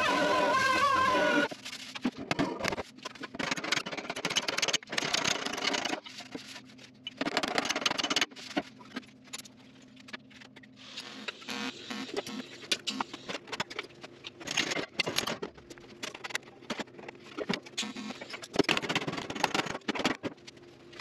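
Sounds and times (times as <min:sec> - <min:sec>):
faint steady hum: 0:08.0 - 0:21.0.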